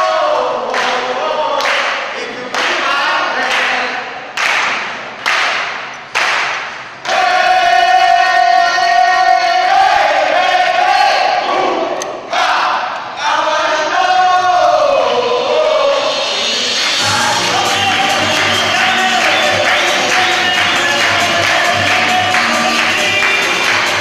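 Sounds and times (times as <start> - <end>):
group singing in chorus: 0.0 - 4.2, 7.0 - 24.0
sharp beats: 15.7 - 24.0.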